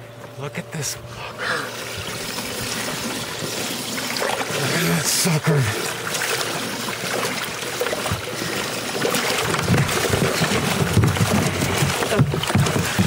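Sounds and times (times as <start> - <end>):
water splashing and sloshing: 1.0 - 13.0
dull knocks: 9.5 - 13.0.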